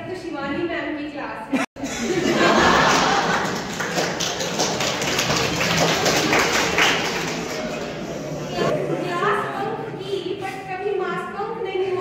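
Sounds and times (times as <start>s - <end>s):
audience applauding: 2.3s - 8.7s.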